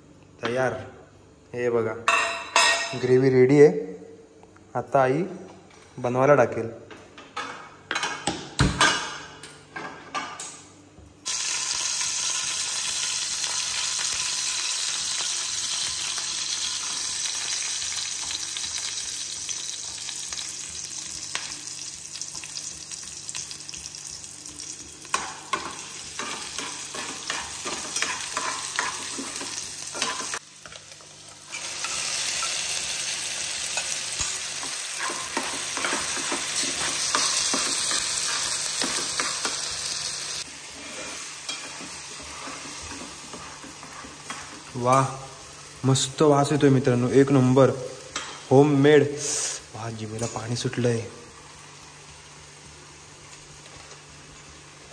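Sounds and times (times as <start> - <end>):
gravy sizzling in hot oil: 11.2 - 54.9.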